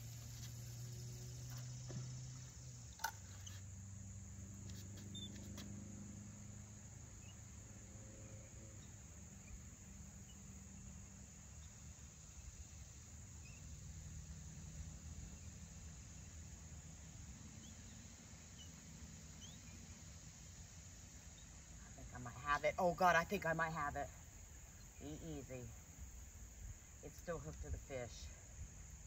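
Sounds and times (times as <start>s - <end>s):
faint high chirps: 17.5s - 20.0s.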